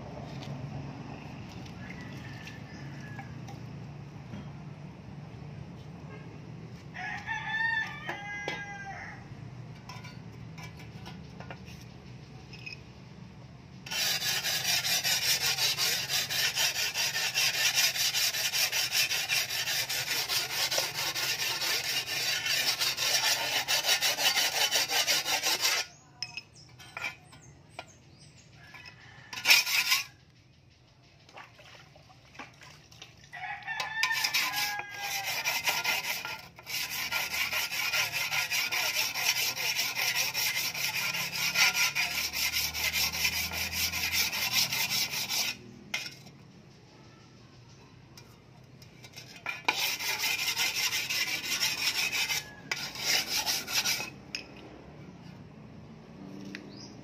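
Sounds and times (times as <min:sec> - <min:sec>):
rooster crowing: 0:01.6 - 0:03.5, 0:06.9 - 0:09.3, 0:33.3 - 0:35.7, 0:52.0 - 0:53.2
sharpening stone scraping shovel blade: 0:09.8 - 0:12.9, 0:13.8 - 0:30.4, 0:34.0 - 0:46.4, 0:47.7 - 0:55.4.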